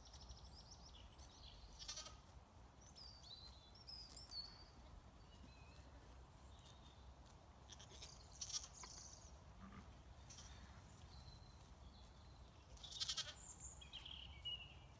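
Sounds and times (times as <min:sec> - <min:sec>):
lambs bleating: 0:01.7 - 0:02.3, 0:07.7 - 0:08.9, 0:09.6 - 0:10.7, 0:12.8 - 0:13.4.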